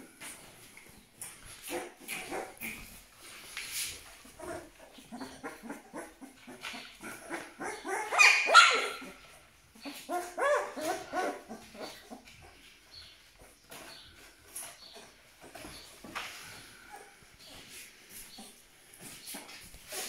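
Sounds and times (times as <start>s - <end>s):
puppies whimpering: 4.2s - 12.6s.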